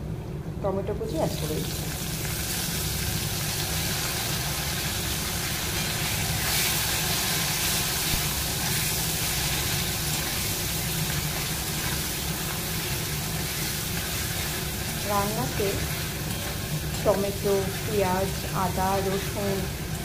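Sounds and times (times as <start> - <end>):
steady low hum: 0.0 - 20.0
vegetables sizzling in hot oil: 1.2 - 20.0
metal spatula stirring: 15.6 - 17.9.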